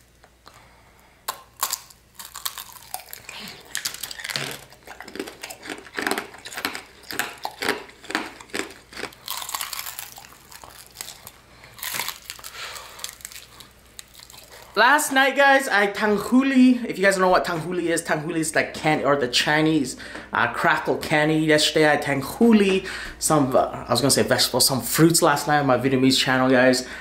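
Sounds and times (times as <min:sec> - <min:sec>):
sugar shell cracking and crunching: 0:01.2 - 0:14.8.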